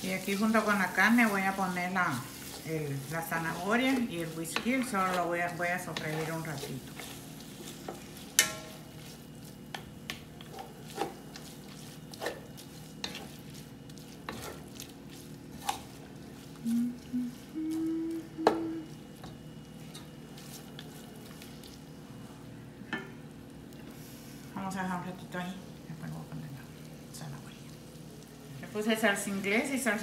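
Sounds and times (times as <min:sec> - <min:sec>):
chicken sizzling in pan: 0:00.0 - 0:16.6.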